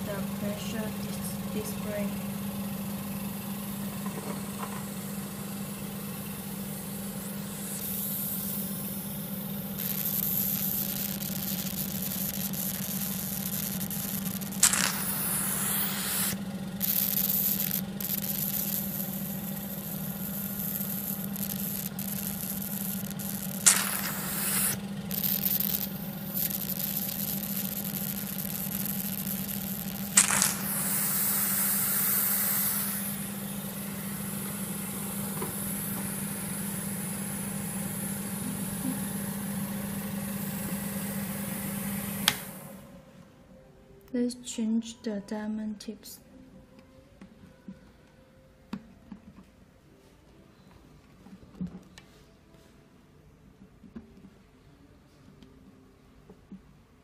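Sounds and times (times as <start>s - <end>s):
vacuum pump humming and hissing: 0.0s - 43.2s
loud hiss of sucked air: 14.0s - 38.8s.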